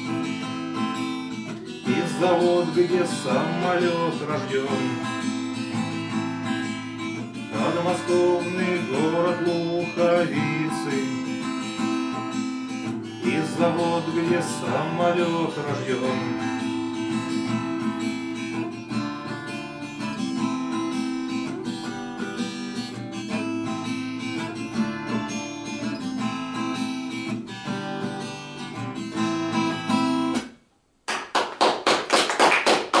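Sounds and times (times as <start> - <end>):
acoustic guitar playing: 0.0 - 30.7
people clapping hands: 30.4 - 33.0.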